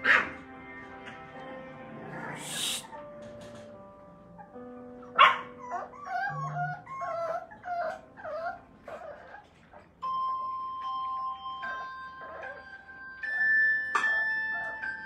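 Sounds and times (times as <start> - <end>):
puppies yapping and whining: 4.3 - 15.0
puppy yelping: 4.4 - 10.0, 11.5 - 15.0
background music with chime notes: 10.0 - 15.0.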